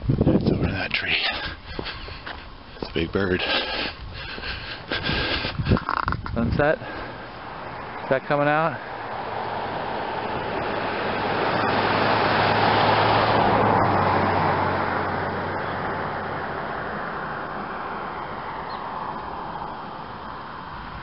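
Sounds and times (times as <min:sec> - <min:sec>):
car passing by: 0:06.8 - 0:21.0.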